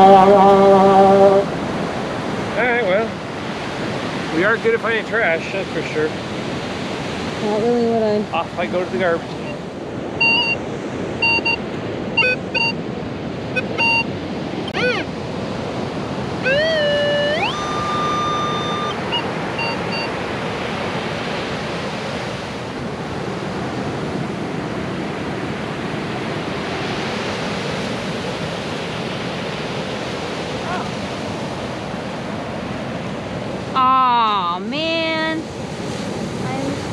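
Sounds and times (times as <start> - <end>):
metal detector rising tone: 0.0 - 1.5, 10.2 - 10.6, 11.2 - 11.6, 12.2 - 12.8, 13.5 - 15.2, 16.4 - 20.2
surf washing: 0.0 - 36.9
metal detector beeps: 10.2 - 10.6, 11.2 - 12.8, 13.6 - 15.1, 16.4 - 20.2.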